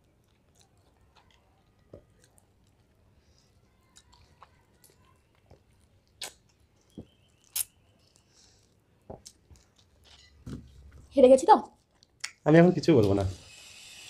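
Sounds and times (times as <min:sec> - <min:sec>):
wet mouth smacks and slurps: 0:06.0 - 0:06.6, 0:07.4 - 0:08.3.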